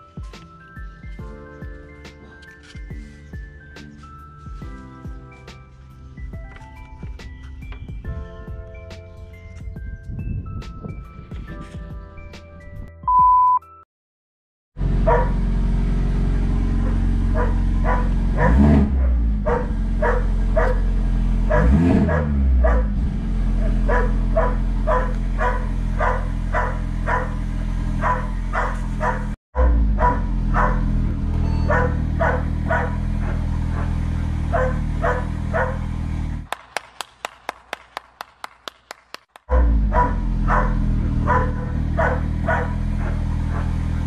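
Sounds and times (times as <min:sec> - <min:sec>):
car engine idling with throttle blips: 0:14.8 - 0:36.5, 0:39.5 - 0:44.0
hand clapping: 0:36.5 - 0:39.5.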